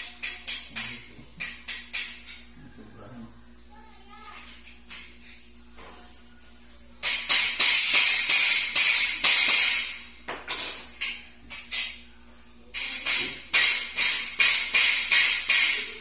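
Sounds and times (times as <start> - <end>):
hammer striking steel rack: 13.0 - 16.0.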